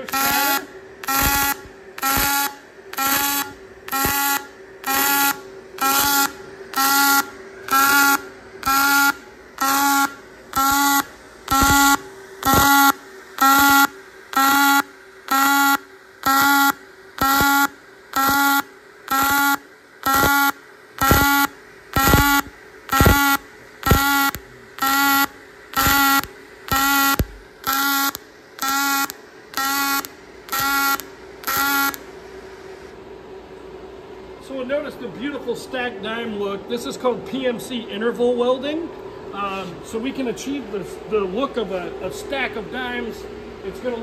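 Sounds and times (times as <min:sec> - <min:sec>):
welding arc buzzing in bursts: 0:00.0 - 0:33.0
faint steady hum: 0:00.0 - 0:44.0.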